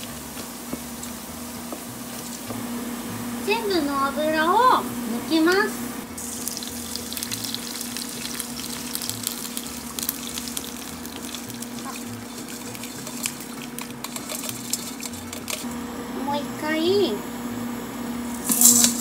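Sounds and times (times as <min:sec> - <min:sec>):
oil and rice pouring through strainer: 0:06.1 - 0:15.7, 0:18.3 - 0:19.0.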